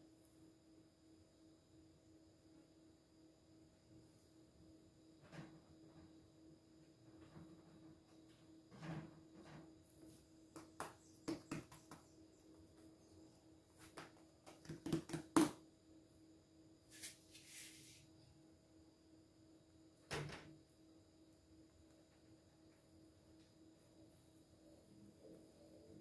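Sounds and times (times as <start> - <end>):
faint steady hum: 0.0 - 26.0
hands tapping dough on table: 10.5 - 12.2, 13.8 - 15.6
knock: 10.6 - 12.0.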